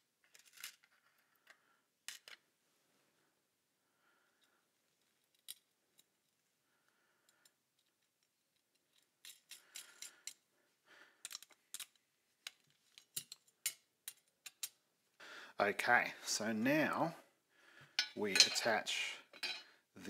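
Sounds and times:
screwdriver and screws clinking on metal: 5.2 - 6.1, 7.3 - 10.4, 11.2 - 14.8, 18.0 - 19.7.

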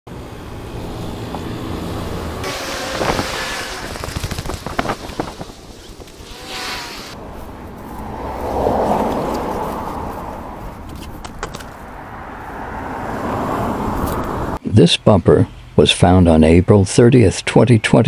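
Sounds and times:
road traffic passing: 0.1 - 15.8
wind on microphone: 0.8 - 7.2
knocks and rustling: 10.8 - 11.9.

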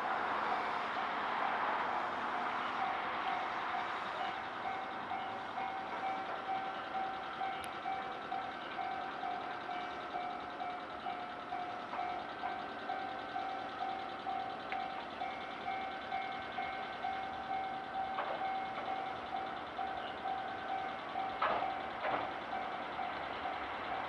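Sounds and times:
level crossing alarm ringing: 2.5 - 24.0.

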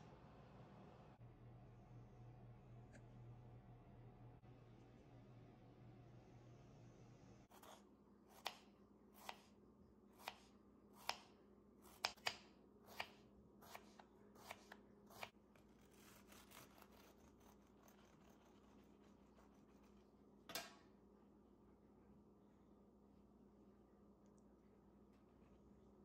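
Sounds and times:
serrated knife rasping through cake: 15.6 - 20.0.

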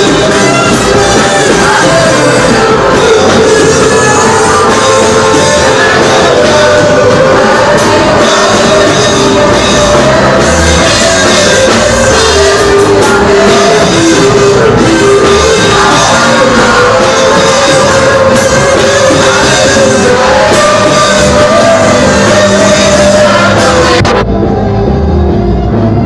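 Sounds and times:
full band playing: 0.0 - 26.0
voices singing held notes: 0.0 - 26.0.

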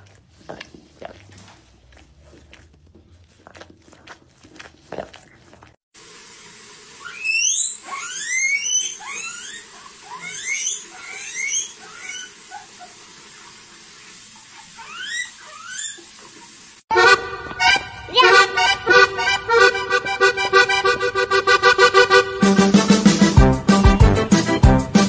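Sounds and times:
running tap water: 5.6 - 16.9
guinea pig squealing: 7.0 - 13.6, 14.3 - 17.1
accordion music: 16.9 - 25.0.

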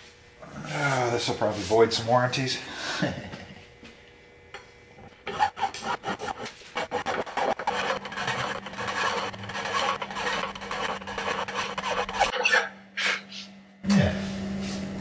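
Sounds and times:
hand file rasping on metal: 5.2 - 12.5.

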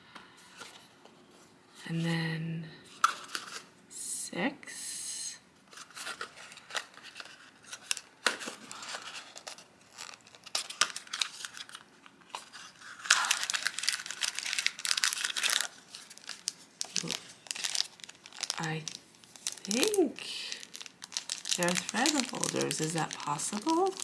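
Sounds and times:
paper tearing and crinkling: 5.8 - 24.0.

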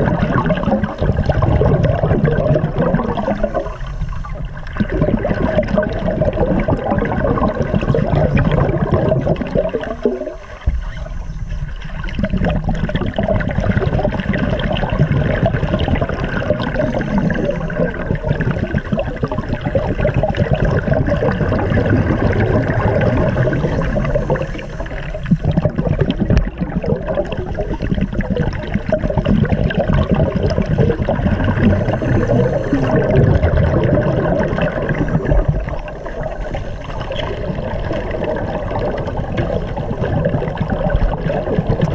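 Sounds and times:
underwater bubbling: 0.0 - 41.9.

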